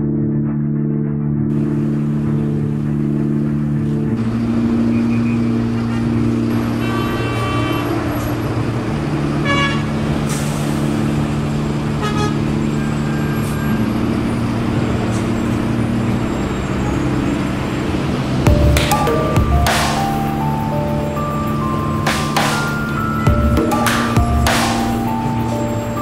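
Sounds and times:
city street traffic: 1.5s - 26.0s
car horns honking: 4.2s - 16.0s.

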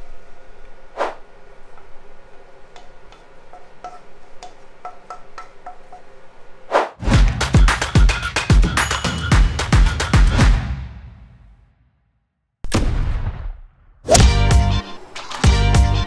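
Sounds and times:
loud music with steady beat: 7.1s - 11.0s.

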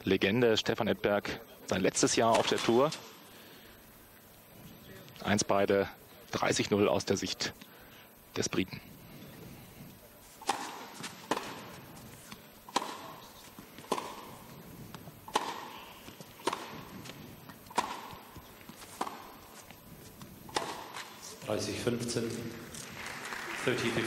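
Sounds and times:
tennis ball pops: 10.4s - 19.4s, 20.2s - 21.1s.

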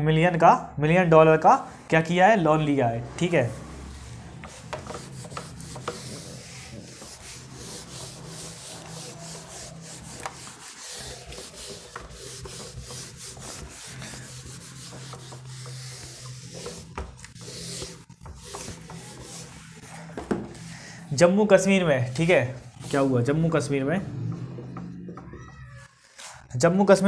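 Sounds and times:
pen scratching on paper: 3.6s - 20.1s.

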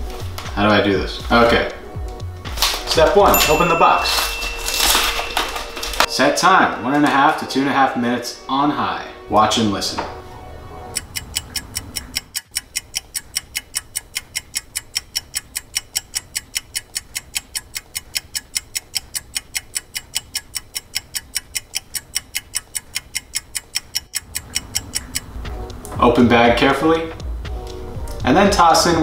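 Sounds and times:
clock ticking quickly: 10.9s - 26.1s.

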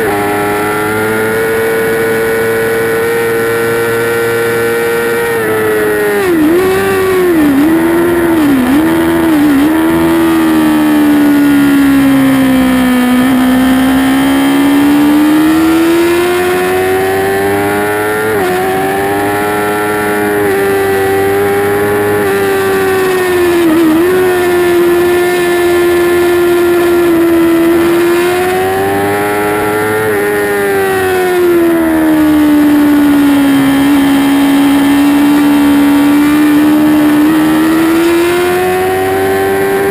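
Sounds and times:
motorcycle engine screaming at high revs: 0.0s - 39.9s.

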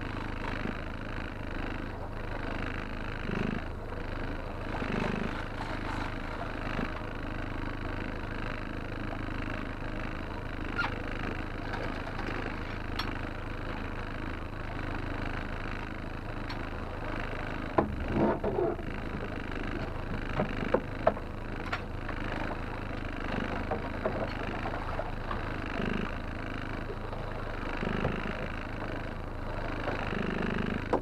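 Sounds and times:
outboard motor running: 0.0s - 31.0s
sharp knocks: 17.8s - 18.6s.

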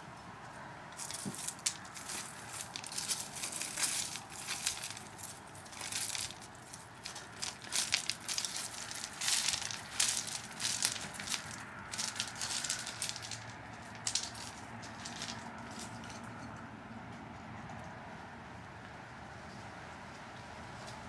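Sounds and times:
stones crunching and clicking: 1.0s - 16.2s.

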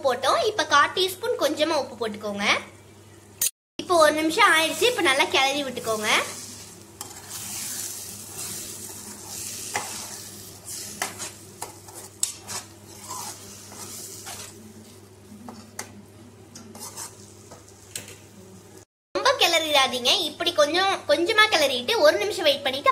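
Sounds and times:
steady sizzle: 0.1s - 21.8s
spatula scraping against pan: 5.8s - 15.8s, 16.7s - 17.7s.

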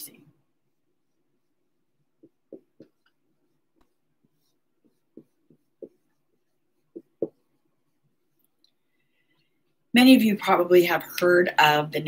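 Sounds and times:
marker writing on whiteboard: 0.0s - 8.6s.

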